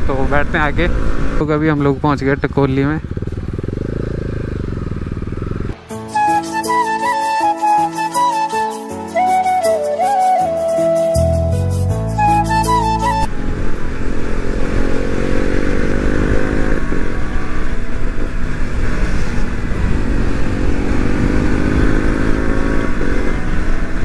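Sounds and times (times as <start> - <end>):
motorcycle engine accelerating: 0.0 - 5.9, 13.2 - 24.0.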